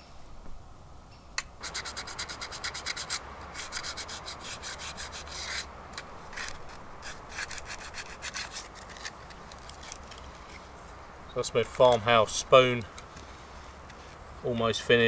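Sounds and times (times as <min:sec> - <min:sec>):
sandpaper rubbing wood: 0:01.6 - 0:10.2.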